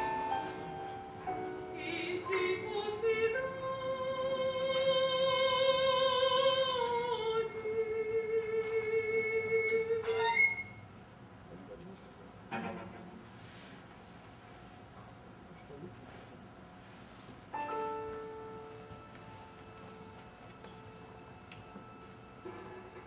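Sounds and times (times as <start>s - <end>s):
woman singing opera: 1.4s - 10.7s.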